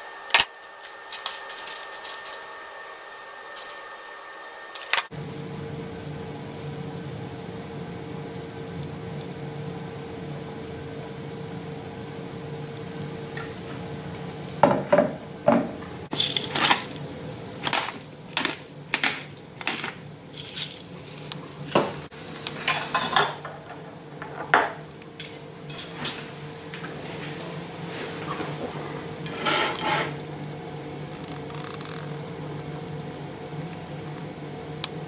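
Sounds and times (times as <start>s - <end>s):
cutlery and crockery clinking: 17.6s - 26.9s.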